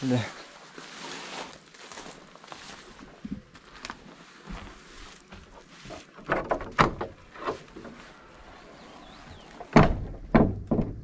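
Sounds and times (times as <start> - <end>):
heavy wooden knocks and thuds: 6.1 - 8.0, 9.6 - 11.0.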